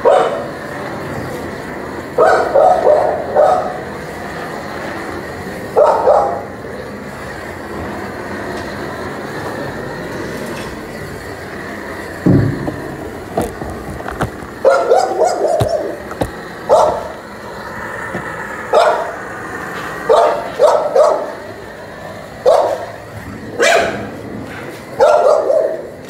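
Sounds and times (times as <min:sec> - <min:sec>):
dogs barking: 0:00.0 - 0:00.6, 0:02.1 - 0:03.9, 0:05.7 - 0:06.6, 0:14.5 - 0:17.3, 0:18.6 - 0:19.4, 0:20.0 - 0:21.4, 0:22.4 - 0:26.0
steady rushing noise: 0:00.0 - 0:25.1.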